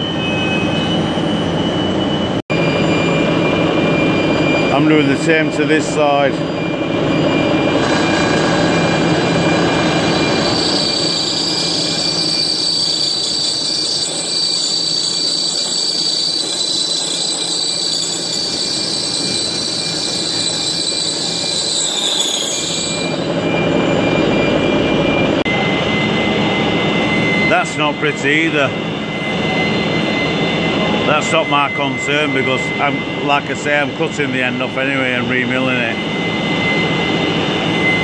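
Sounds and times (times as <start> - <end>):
high ringing tone: 0.0 - 38.0
milling machine cutting steel: 7.3 - 23.6.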